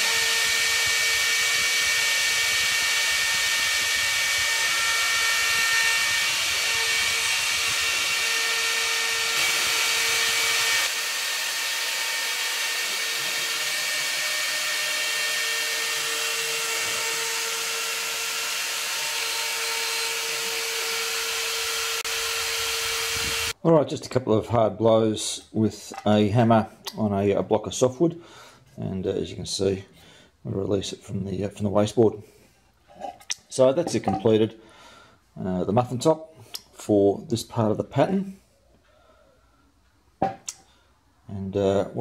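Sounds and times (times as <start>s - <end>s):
cutter hissing through wood: 0.0s - 23.6s
router spindle whine: 0.0s - 23.6s.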